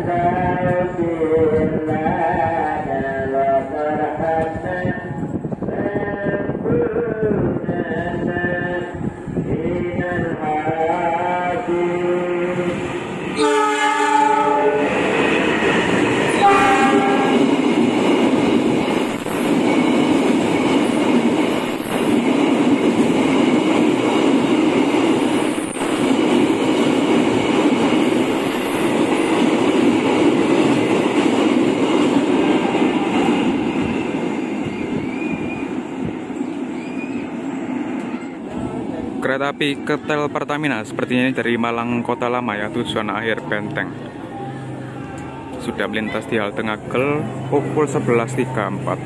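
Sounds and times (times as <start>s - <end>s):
train rumble and wheel clatter: 0.0s - 49.0s
locomotive horn blasts: 13.4s - 14.9s, 16.3s - 17.4s.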